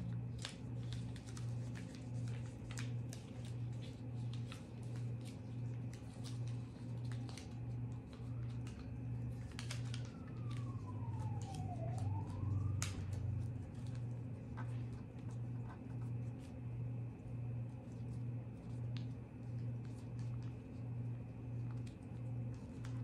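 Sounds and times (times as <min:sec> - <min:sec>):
paper crinkling and clicking: 0:00.0 - 0:23.0
pulsing low hum: 0:07.3 - 0:23.0.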